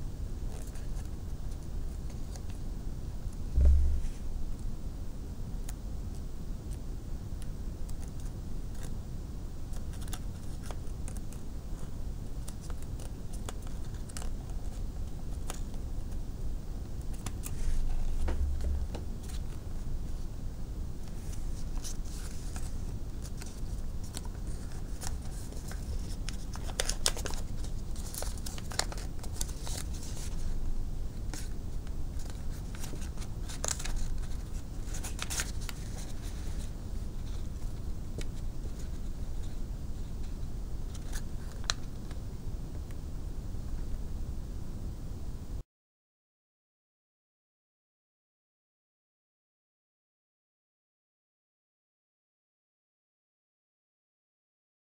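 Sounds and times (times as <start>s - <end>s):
low hum: 2.6s - 7.2s, 15.9s - 45.6s
low bump: 3.6s - 4.4s
paper crinkling: 21.1s - 30.6s, 31.3s - 39.5s, 40.9s - 41.9s.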